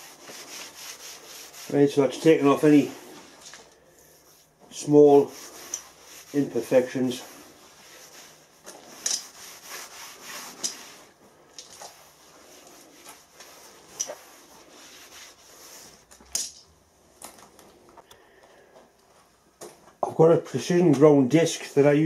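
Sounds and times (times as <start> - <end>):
cloth wiping steel table: 0.0 - 16.1.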